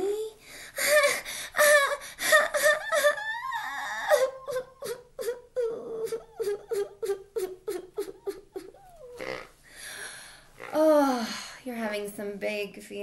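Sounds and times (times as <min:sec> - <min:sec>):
woman fake crying and sobbing: 0:00.0 - 0:09.5.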